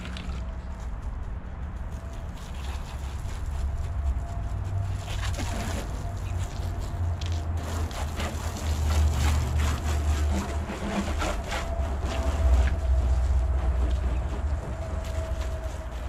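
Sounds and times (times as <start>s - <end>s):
hose spraying water on car: 5.0s - 16.0s.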